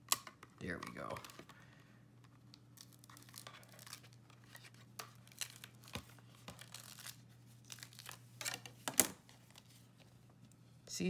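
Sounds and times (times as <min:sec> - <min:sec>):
paper tearing and crinkling: 0:02.8 - 0:08.8.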